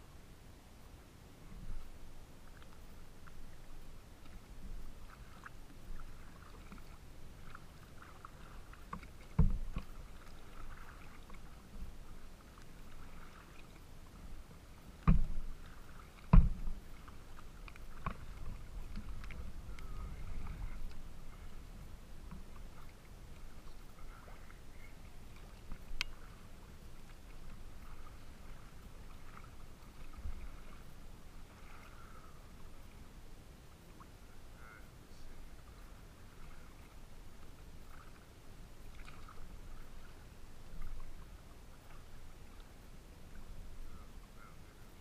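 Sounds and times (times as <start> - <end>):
waves lapping against kayak hull: 0.8 - 45.0
sharp knocks on hull: 9.3 - 9.9, 15.0 - 15.5, 16.2 - 16.8.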